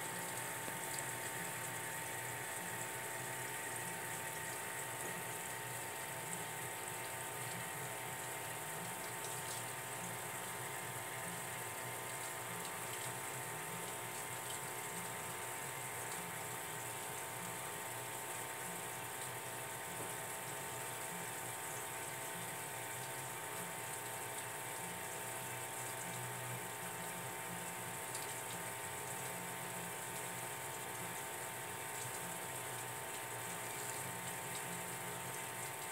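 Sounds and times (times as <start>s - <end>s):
steady hum: 0.0s - 19.0s
aquarium water bubbling: 0.0s - 35.9s.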